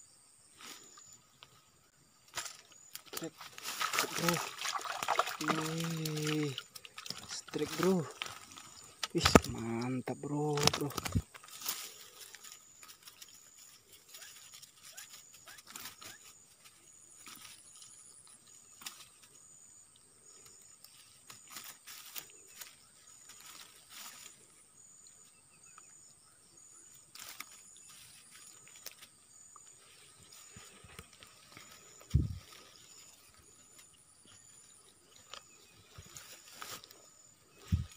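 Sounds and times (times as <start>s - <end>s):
insect chirping: 0.0s - 37.9s
insects buzzing: 0.0s - 37.9s
faint clicks and rustles: 26.9s - 37.9s.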